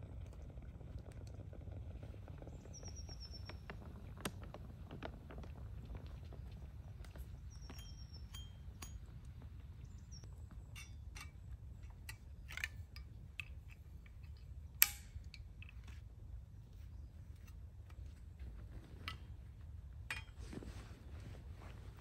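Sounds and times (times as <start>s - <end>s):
low outdoor rumble: 0.0s - 22.0s
bird chirps: 7.4s - 9.0s, 9.8s - 11.0s
sharp clink: 10.8s - 12.8s.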